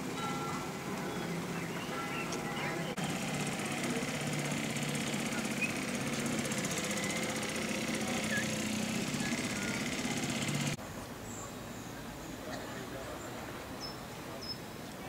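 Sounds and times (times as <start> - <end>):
outboard motor running: 0.0 - 10.8.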